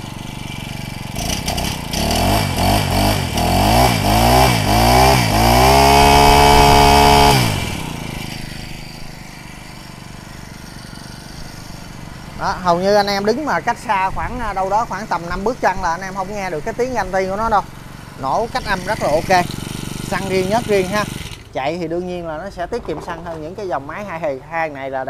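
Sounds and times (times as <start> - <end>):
brush cutter engine revving: 0.0 - 24.0.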